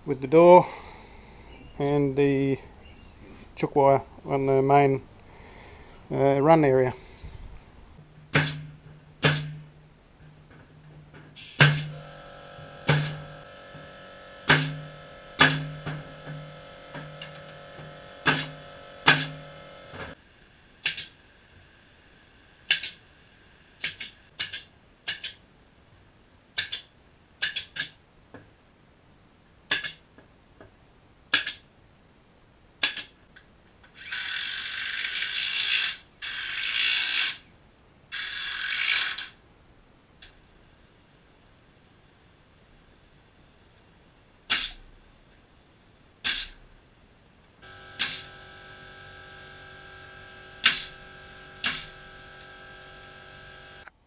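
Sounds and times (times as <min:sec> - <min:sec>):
steady hum: 0:03.6 - 0:23.7, 0:46.1 - 0:54.0
power tool whirring: 0:11.4 - 0:20.2, 0:47.6 - 0:53.9.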